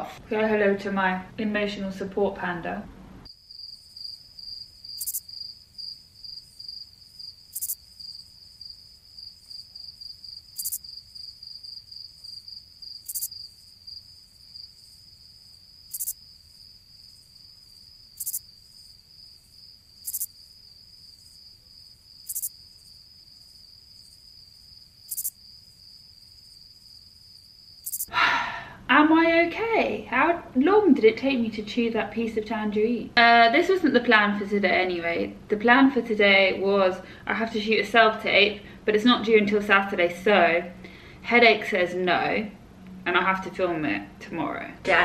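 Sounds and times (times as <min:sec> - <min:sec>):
crickets chirping: 0:03.2 - 0:28.8.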